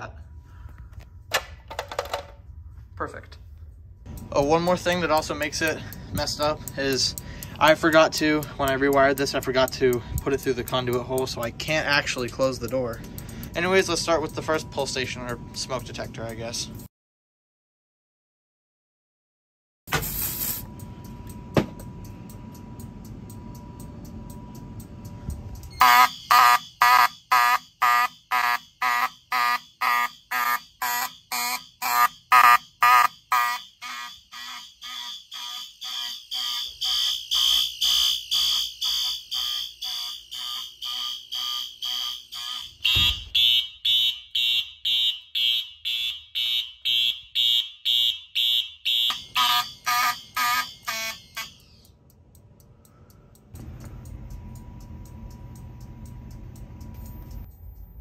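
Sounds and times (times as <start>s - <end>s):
pulsed fire alarm horns: 13.4s - 16.4s, 20.8s - 52.0s
steady high electronic tone: 20.7s - 43.8s, 49.1s - 51.9s.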